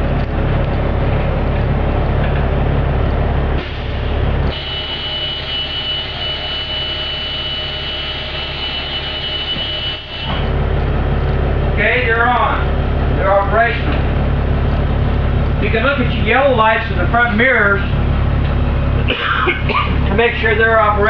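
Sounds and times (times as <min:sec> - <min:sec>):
bus diesel engine idling: 0:00.0 - 0:21.0
high-pitched door alarm buzz: 0:04.5 - 0:10.5.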